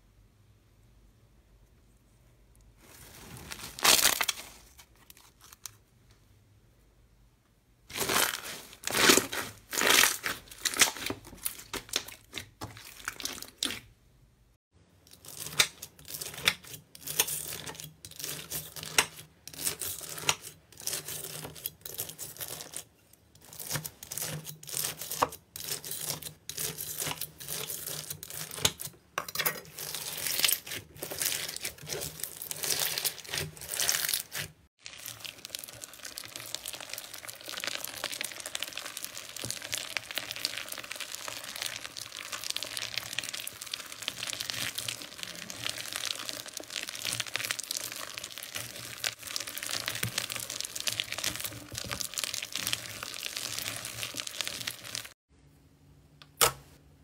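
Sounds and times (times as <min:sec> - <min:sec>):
slime crackling: 0:07.9 - 0:13.9, 0:29.7 - 0:55.2
slime squelching: 0:07.9 - 0:14.0, 0:29.6 - 0:55.2.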